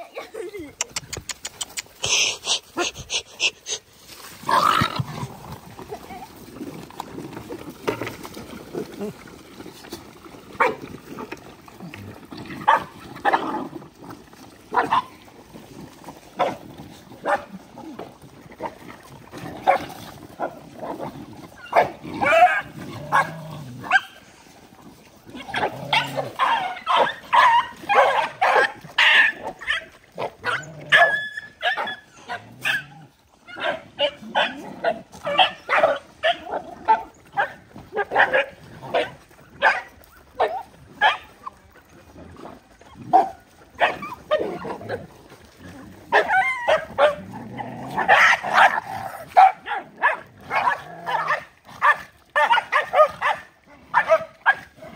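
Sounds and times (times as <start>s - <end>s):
dogs squabbling and yelping: 0.0s - 3.9s, 14.8s - 15.2s, 20.9s - 24.2s, 25.3s - 41.8s, 42.8s - 45.0s, 46.1s - 54.8s.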